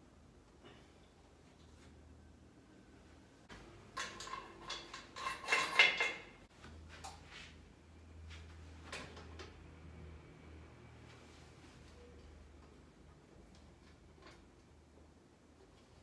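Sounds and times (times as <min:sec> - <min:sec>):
metal parts clattering: 0:04.0 - 0:06.4.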